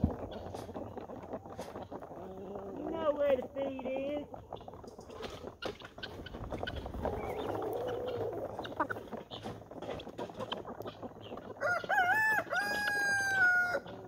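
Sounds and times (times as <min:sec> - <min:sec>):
rooster crowing: 0:11.6 - 0:13.9.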